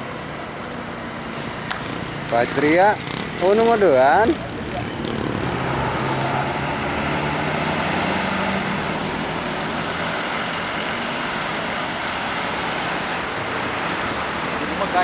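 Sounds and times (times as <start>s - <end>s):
bus engine and tyre noise: 0.0s - 15.0s
passing road traffic: 0.0s - 15.0s.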